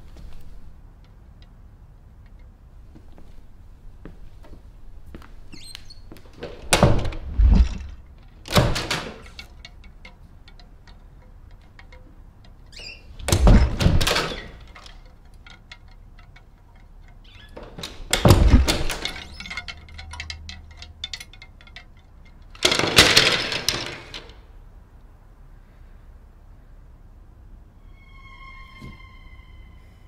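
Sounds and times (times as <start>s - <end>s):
closet door banging and rattling: 6.4s - 9.8s, 12.8s - 15.1s, 17.5s - 20.1s, 22.6s - 24.3s.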